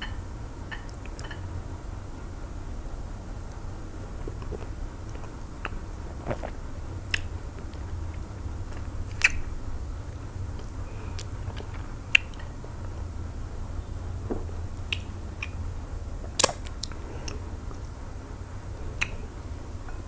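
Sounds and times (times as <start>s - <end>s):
steady low hum: 0.0s - 20.0s
person chewing: 4.2s - 9.5s, 16.2s - 17.5s
wet clicks and smacks: 4.4s - 9.5s, 14.9s - 15.6s, 16.3s - 17.4s, 19.0s - 19.2s.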